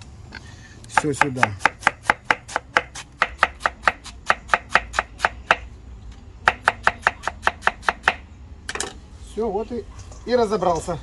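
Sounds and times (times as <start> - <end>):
knife chopping cabbage on wood: 0.9 - 5.6, 6.5 - 8.2.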